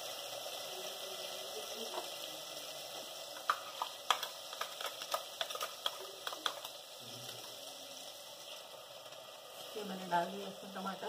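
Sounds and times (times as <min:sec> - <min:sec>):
masala sizzling in oil: 0:00.0 - 0:11.0
sharp clicks and taps: 0:03.4 - 0:06.7.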